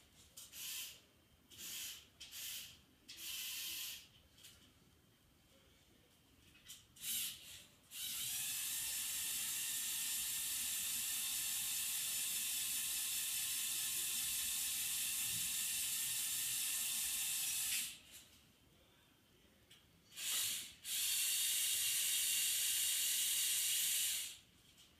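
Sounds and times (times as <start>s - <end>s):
toy motor and gears whirring: 0.4s - 4.1s, 7.0s - 18.0s, 20.1s - 24.4s.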